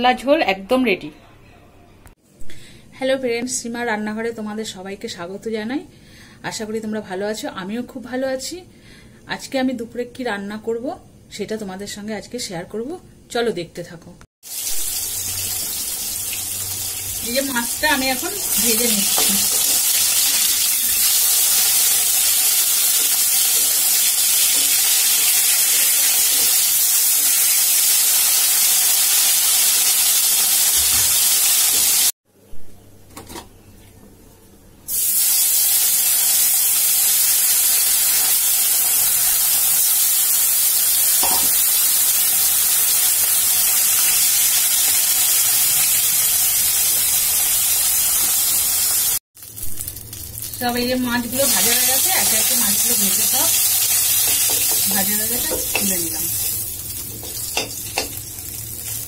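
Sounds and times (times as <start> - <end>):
fish sizzling in hot oil: 14.4 - 32.1, 34.9 - 59.0.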